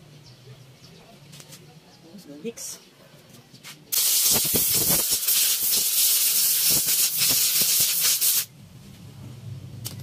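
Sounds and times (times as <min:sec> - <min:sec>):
pressurized gas hissing: 0:03.9 - 0:08.5.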